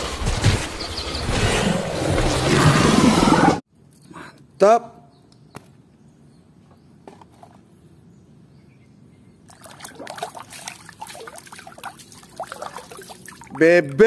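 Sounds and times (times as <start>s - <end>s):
water splashing in a basin: 9.5s - 13.6s
water dripping: 9.5s - 14.0s.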